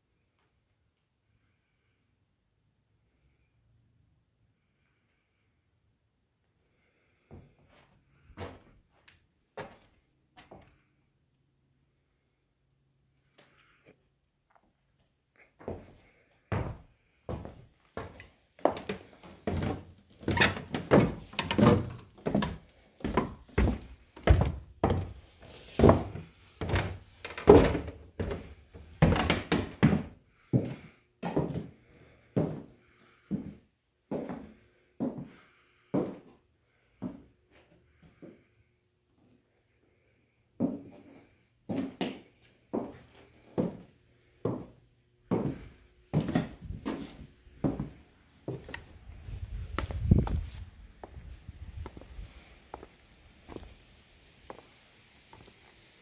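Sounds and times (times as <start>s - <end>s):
footsteps on wooden floorboards: 15.6s - 31.7s, 41.7s - 43.8s, 44.4s - 48.9s, 51.8s - 52.0s.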